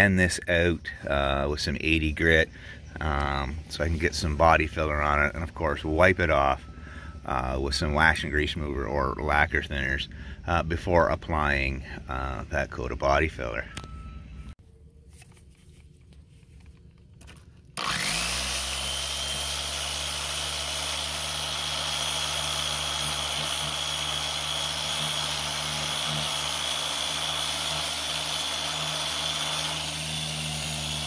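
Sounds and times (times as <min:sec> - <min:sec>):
sander whining: 0:17.8 - 0:31.0.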